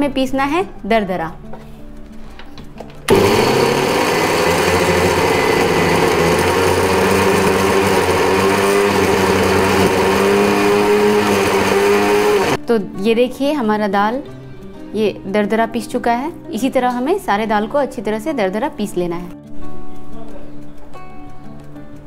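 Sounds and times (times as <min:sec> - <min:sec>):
mixer grinder grinding: 0:03.1 - 0:12.6.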